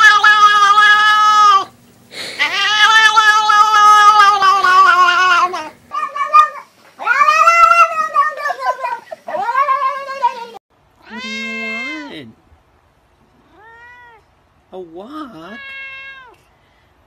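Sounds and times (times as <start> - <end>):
cats meowing long yowls: 0.0 - 1.7, 2.4 - 12.2, 13.4 - 14.3, 15.5 - 16.4.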